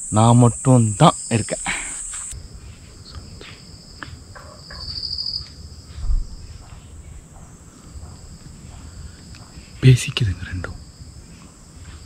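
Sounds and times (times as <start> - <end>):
crickets and insects chirping: 0.0 - 12.0
bird calls: 3.1 - 5.5
soft low thump: 6.0 - 6.4.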